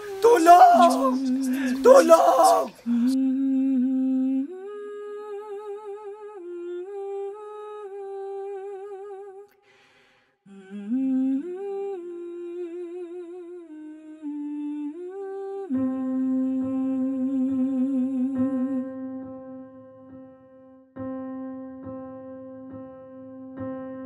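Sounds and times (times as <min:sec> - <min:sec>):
person humming: 0:00.0 - 0:09.2.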